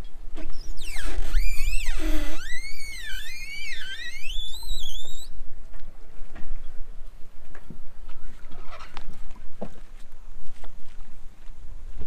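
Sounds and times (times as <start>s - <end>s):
rubber tube squealing on trailer: 0.4s - 5.3s.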